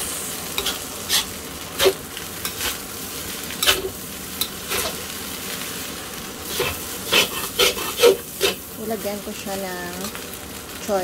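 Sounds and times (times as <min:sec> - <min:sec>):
rice sizzling in a wok: 0:00.0 - 0:11.0
spatula scraping a wok: 0:00.1 - 0:08.7.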